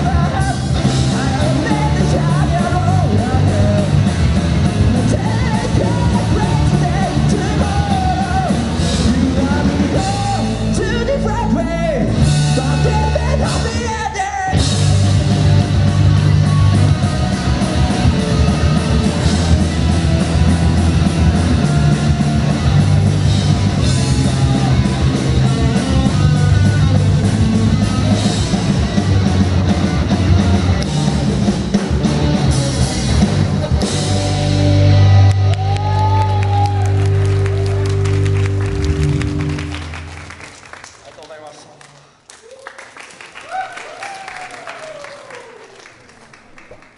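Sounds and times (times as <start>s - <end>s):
person singing: 0.0s - 14.9s, 23.8s - 27.8s
drum kit: 0.0s - 40.6s
electric guitars: 0.0s - 40.6s.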